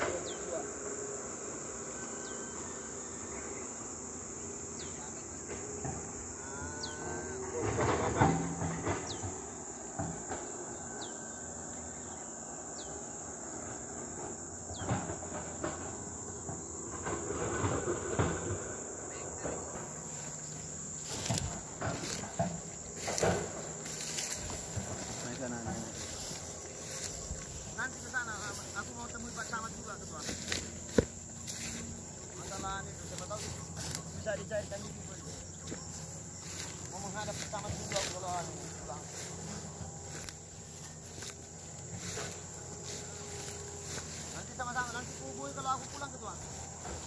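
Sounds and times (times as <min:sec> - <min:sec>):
insect drone: 0:00.0 - 0:47.0
rustles and knocks: 0:14.7 - 0:47.0.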